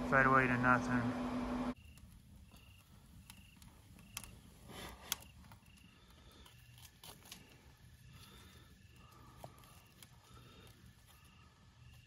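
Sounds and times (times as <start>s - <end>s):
insect chirping: 1.7s - 12.0s
wood fire snapping: 1.8s - 11.0s.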